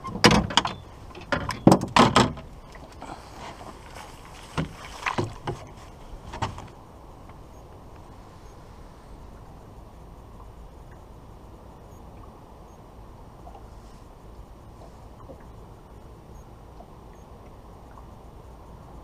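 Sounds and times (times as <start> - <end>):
knocks against small boat: 0.0 - 2.5, 4.5 - 6.7.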